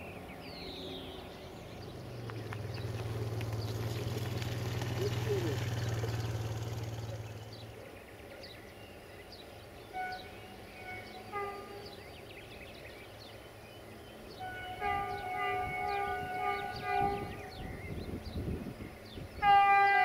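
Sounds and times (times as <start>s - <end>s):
birds chirping: 0.0s - 20.0s
locomotive horn: 9.8s - 12.3s, 14.2s - 17.9s, 19.4s - 20.0s.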